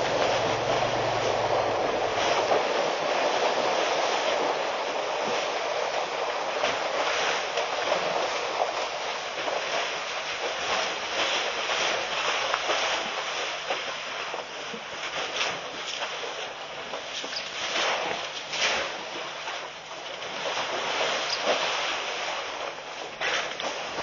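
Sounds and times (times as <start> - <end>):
wind and water hiss: 0.0 - 24.0
small clicks and splashes: 5.3 - 24.0.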